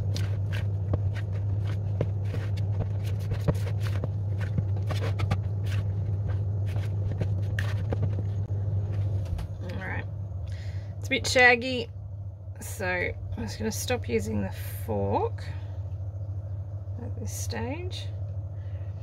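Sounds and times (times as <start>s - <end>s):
fork scraping plastic bowl: 0.0s - 8.4s
sticky dough sounds: 0.0s - 10.0s
steady low hum: 0.0s - 19.0s.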